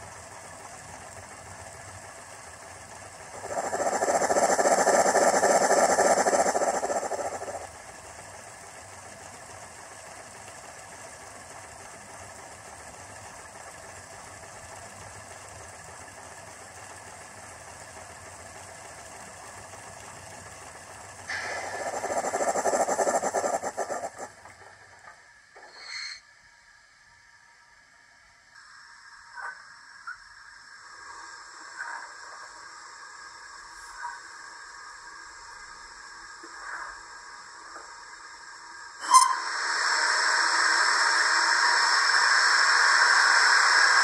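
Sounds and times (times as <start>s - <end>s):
steam engine chuffing: 0.0s - 25.2s
high hiss: 3.2s - 7.9s, 21.3s - 24.4s, 28.5s - 44.0s.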